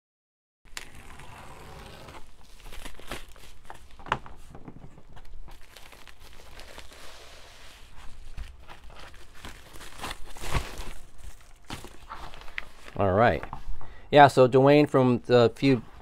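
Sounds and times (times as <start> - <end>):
plastic mailer crinkling: 1.8 - 7.2, 7.9 - 13.4.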